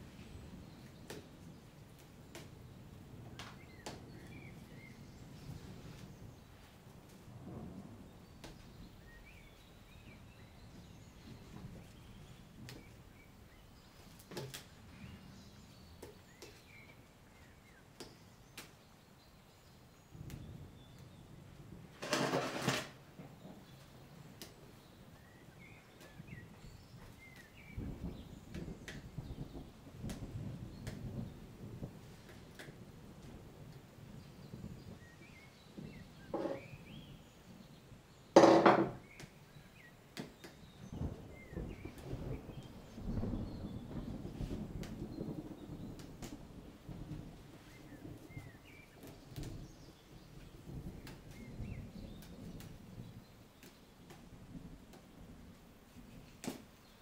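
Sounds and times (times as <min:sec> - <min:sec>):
faint low thunder rumble: 0:00.0 - 0:57.0
rain: 0:00.0 - 0:57.0
loud thunder crack: 0:07.2 - 0:13.0, 0:40.8 - 0:48.7.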